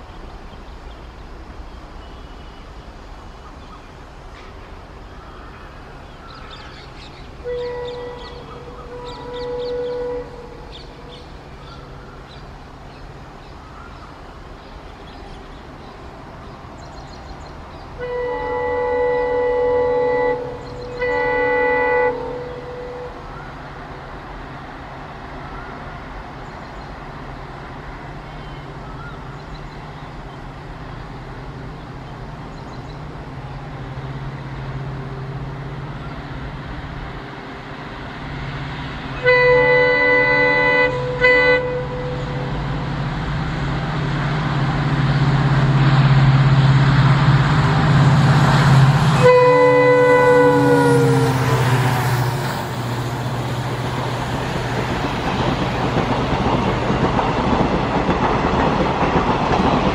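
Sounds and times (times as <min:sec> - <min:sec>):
diesel locomotive engine drone: 0:00.0 - 0:59.9
train horn blasts: 0:07.4 - 0:11.2, 0:18.0 - 0:23.4, 0:39.1 - 0:42.8, 0:47.9 - 0:53.0.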